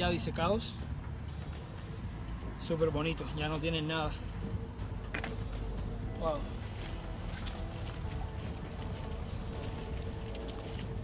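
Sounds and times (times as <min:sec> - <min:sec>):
footsteps crunching on dry leaves: 0:06.4 - 0:11.0.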